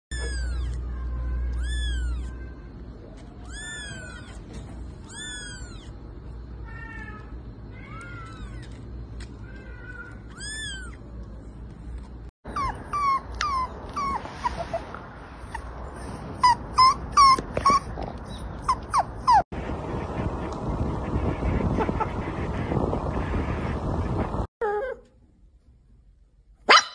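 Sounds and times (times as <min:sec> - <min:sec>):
puppy whimpering and yelping: 0:00.1 - 0:00.8, 0:03.5 - 0:05.9, 0:12.5 - 0:19.5, 0:24.6 - 0:25.0
kittens mewing: 0:00.1 - 0:06.0, 0:09.5 - 0:11.1.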